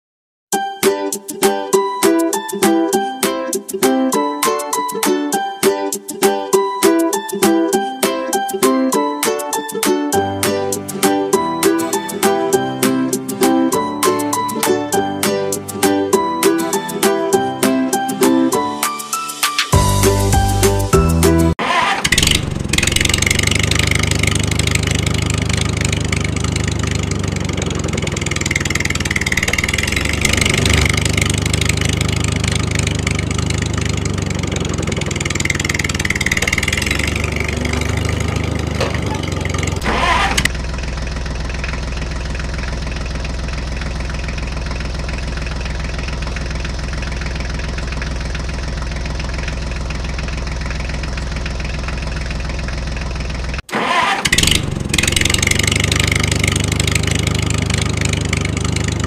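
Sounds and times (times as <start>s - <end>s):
tractor engine revving: 21.6s - 59.0s.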